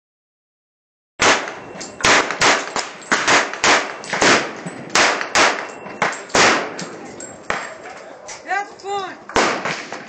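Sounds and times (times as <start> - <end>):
rapid gunshots: 1.2 - 5.6, 9.4 - 10.0.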